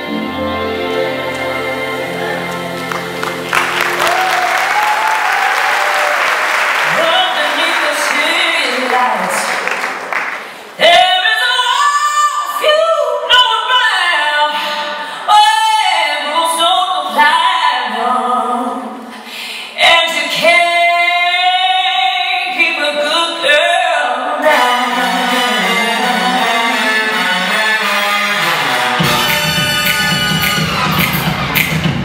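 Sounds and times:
musical accompaniment: 0.0s - 6.0s, 24.4s - 32.0s
woman singing with vibrato: 6.8s - 9.6s, 10.8s - 27.8s.

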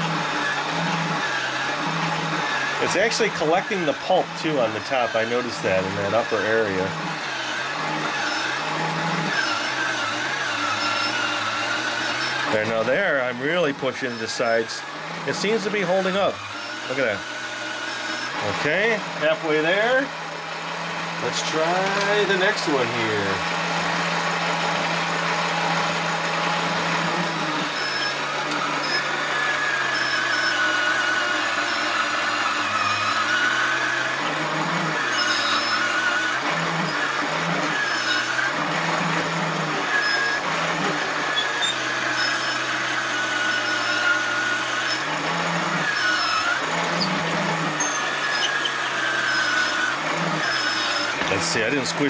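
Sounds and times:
small electric motor humming: 0.0s - 52.0s
squeaks from pressing fruit: 27.7s - 29.1s, 41.3s - 42.7s, 45.9s - 51.3s.

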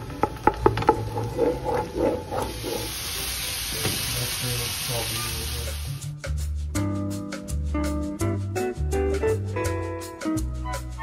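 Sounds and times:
frying sizzle: 0.0s - 6.1s
wooden spatula scraping a pan: 0.2s - 3.0s.

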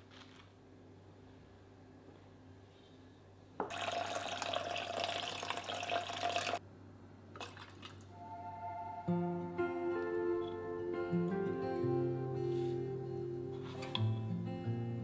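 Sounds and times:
water pouring into a metal pot: 3.7s - 6.6s.

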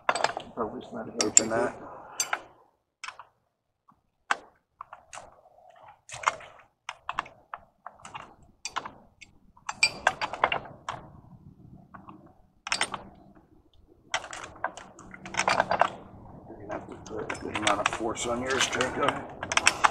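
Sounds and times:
pipe wrench metal clicks and knocks: 0.0s - 0.5s, 1.2s - 1.6s, 6.2s - 11.0s, 12.0s - 13.4s, 14.1s - 16.2s, 16.8s - 19.9s.

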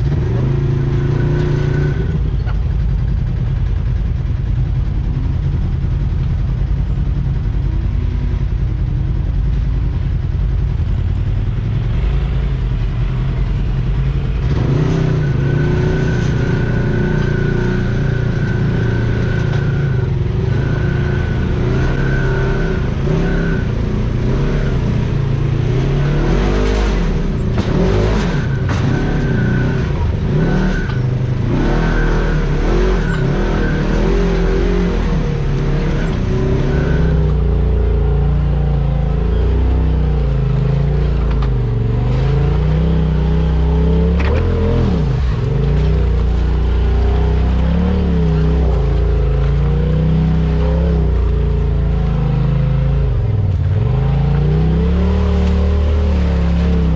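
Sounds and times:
off-road vehicle engine running: 0.0s - 56.9s.

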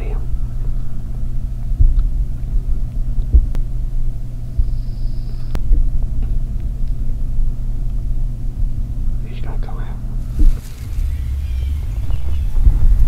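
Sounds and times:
low rumble: 10.0s - 13.0s.

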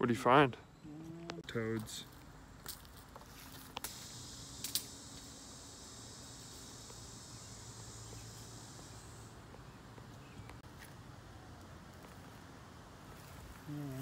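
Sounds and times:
insects buzzing: 0.6s - 11.4s.

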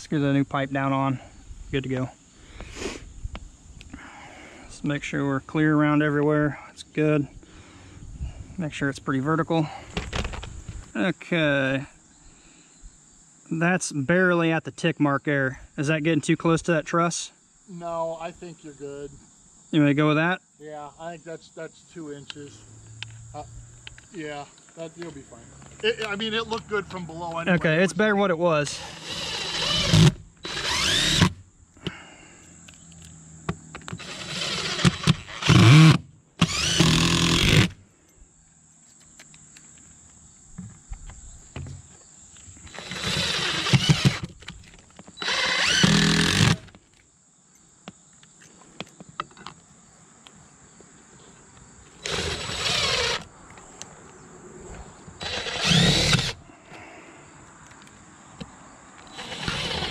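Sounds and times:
cordless drill driving screws: 28.8s - 31.4s, 33.9s - 37.8s, 42.7s - 44.5s, 45.2s - 46.8s, 52.0s - 53.3s, 55.2s - 56.4s, 59.0s - 59.9s.

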